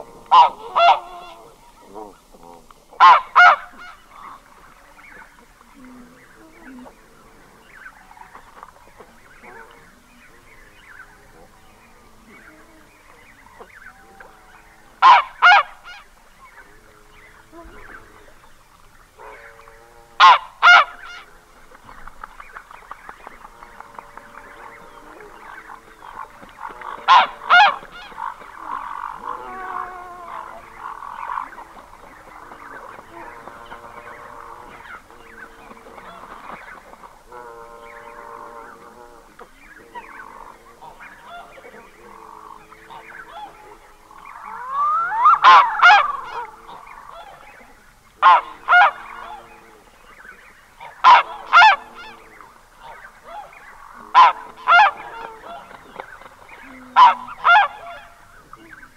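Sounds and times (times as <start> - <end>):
goose calling: 0.0 - 2.2, 3.0 - 4.5, 15.0 - 16.1, 19.2 - 21.3, 24.6 - 39.3, 40.0 - 49.5, 50.8 - 58.8
quieter bird calls: 0.0 - 58.9.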